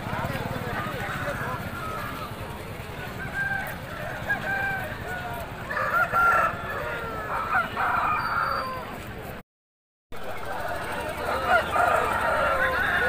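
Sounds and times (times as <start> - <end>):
roosters crowing: 3.1 - 9.1, 10.4 - 13.0.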